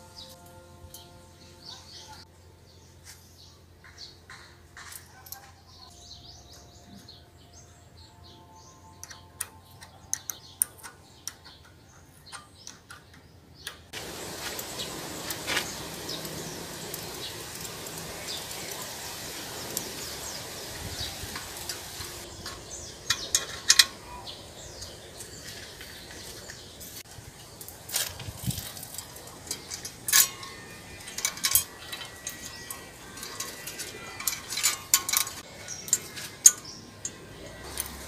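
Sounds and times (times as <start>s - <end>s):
outdoor background hiss: 0.0s - 38.0s
metallic clicks of wrench: 9.0s - 13.9s, 29.5s - 38.0s.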